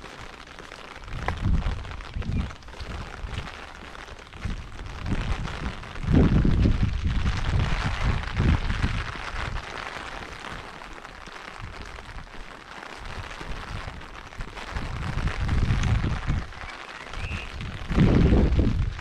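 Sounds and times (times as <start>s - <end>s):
rain hiss: 0.0s - 19.0s
wind buffeting microphone: 1.0s - 9.7s, 13.0s - 19.0s.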